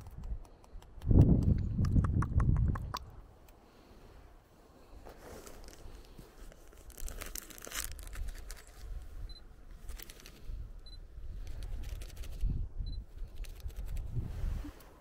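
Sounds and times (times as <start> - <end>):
plastic bag crinkling: 5.4 - 8.8.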